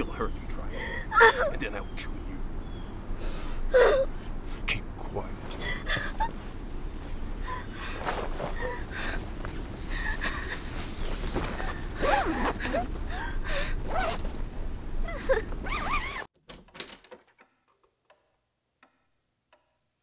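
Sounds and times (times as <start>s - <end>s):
girl whimpering and crying: 0.7s - 1.6s, 3.7s - 4.1s, 5.6s - 6.4s, 7.4s - 9.2s, 11.6s - 13.8s, 15.0s - 16.2s
tent fabric rustling: 6.2s - 13.0s, 13.8s - 14.5s, 15.6s - 16.3s.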